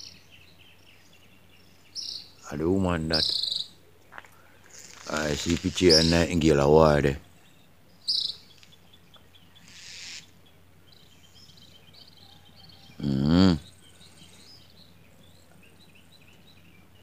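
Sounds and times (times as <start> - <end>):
outdoor background noise: 0.0 - 17.0
rustle: 0.0 - 17.0
small birds chirping and trilling: 0.0 - 17.0
man humming: 13.0 - 13.7.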